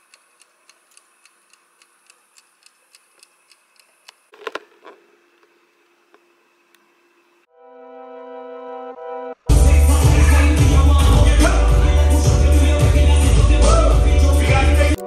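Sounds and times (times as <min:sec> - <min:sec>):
dial timer ticking: 0:00.0 - 0:04.3.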